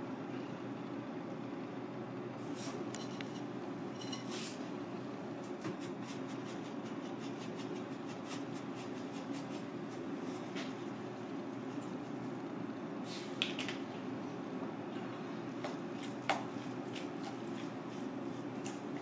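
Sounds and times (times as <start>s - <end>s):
kitchen background hum: 0.0s - 19.0s
light clicks and scrapes: 2.6s - 4.6s.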